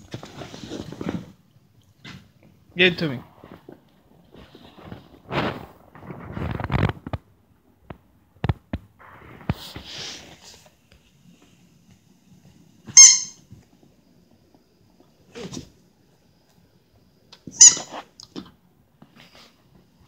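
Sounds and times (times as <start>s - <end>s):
puppy high squeak: 13.0s - 13.4s, 17.6s - 18.0s.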